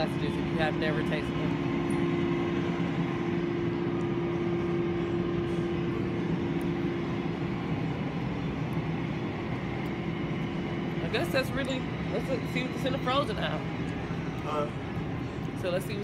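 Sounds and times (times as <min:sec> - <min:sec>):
mechanical hum: 0:00.0 - 0:16.0.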